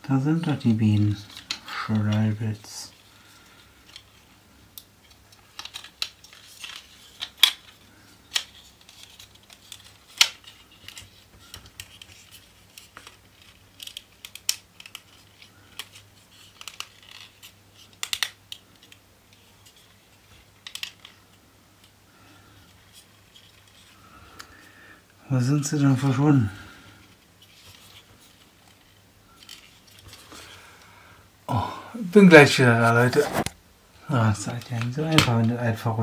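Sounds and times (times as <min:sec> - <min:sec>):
faint steady low hum: 0:00.0 - 0:36.0
plastic parts clicking and scraping: 0:00.3 - 0:24.6, 0:26.6 - 0:30.6.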